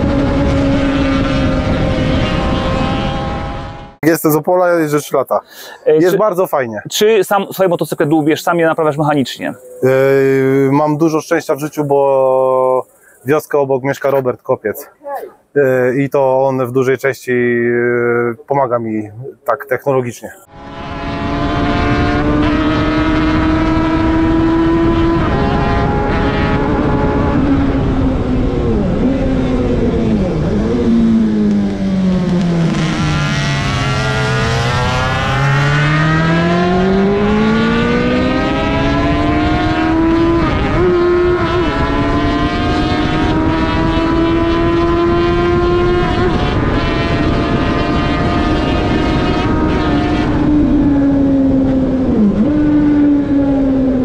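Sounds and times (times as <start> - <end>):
motorcycle engine revving: 0.0 - 4.0, 20.4 - 54.0
wind rush over microphone: 0.0 - 4.0, 20.5 - 54.0.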